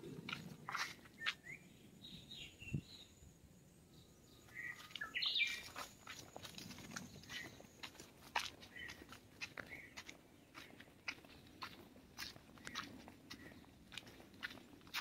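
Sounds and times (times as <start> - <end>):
footsteps on a dirt path: 0.0 - 1.6, 4.4 - 15.0
bird chirps: 0.6 - 3.2, 3.8 - 7.9, 8.7 - 11.8.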